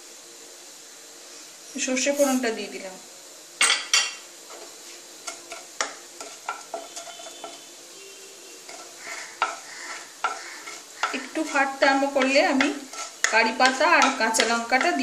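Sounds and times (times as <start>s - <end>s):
faint oil sizzle: 0.0s - 15.0s
spatula scraping and tapping pan: 3.6s - 7.8s, 8.6s - 15.0s.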